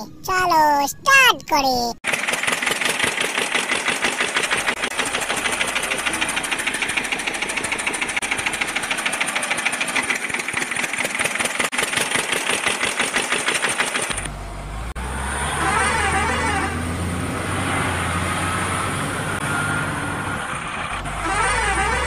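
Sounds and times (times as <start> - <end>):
tractor engine chugging: 2.0 - 15.0, 19.3 - 22.0.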